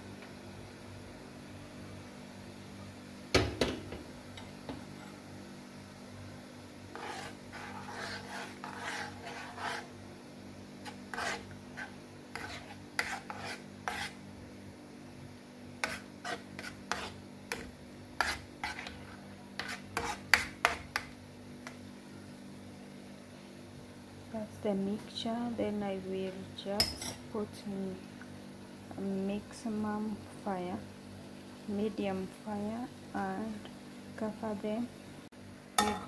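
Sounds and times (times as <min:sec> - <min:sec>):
spoon scraping in a frying pan: 0:04.4 - 0:05.3, 0:06.9 - 0:10.0, 0:10.8 - 0:14.2, 0:15.8 - 0:21.8.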